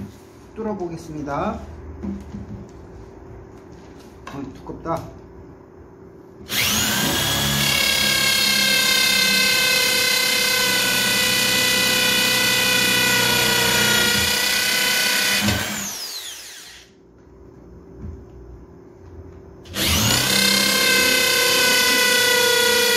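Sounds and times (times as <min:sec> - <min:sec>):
electric drill boring into wood: 0:06.5 - 0:17.0, 0:19.7 - 0:22.9.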